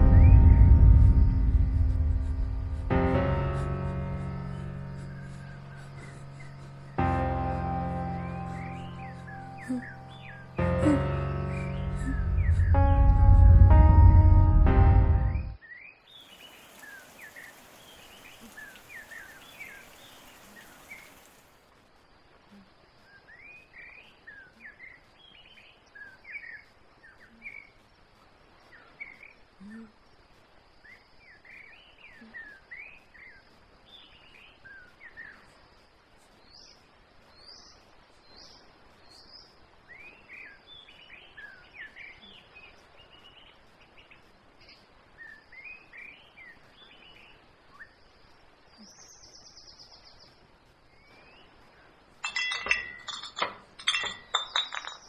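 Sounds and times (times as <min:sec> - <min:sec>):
rising buzz: 0:00.0 - 0:04.2
insect hiss: 0:00.0 - 0:13.0, 0:15.9 - 0:52.4
birds chirping: 0:03.5 - 0:13.2, 0:15.3 - 0:21.5, 0:37.4 - 0:55.0
metal objects clattering: 0:52.2 - 0:55.0.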